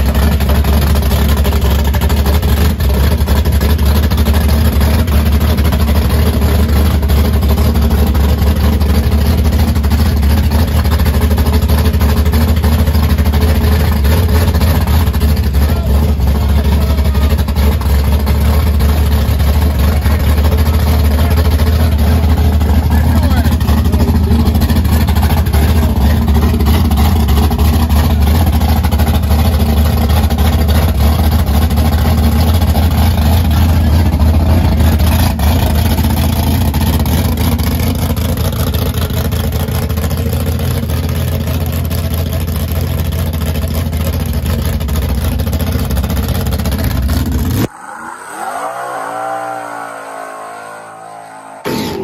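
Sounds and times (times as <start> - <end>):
drag car engine running: 0.0 - 47.7.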